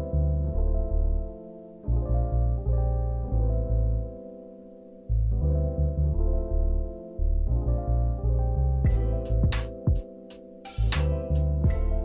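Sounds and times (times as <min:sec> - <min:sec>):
bass and keyboard chords: 0:00.0 - 0:12.0
drum hits: 0:08.9 - 0:10.1.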